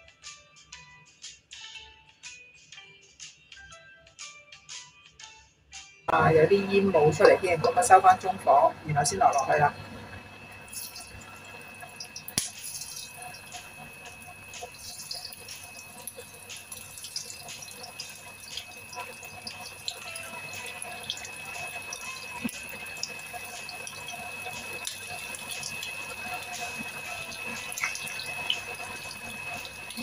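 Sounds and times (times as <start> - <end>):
hot oil sizzling and spitting: 7.0 - 30.0.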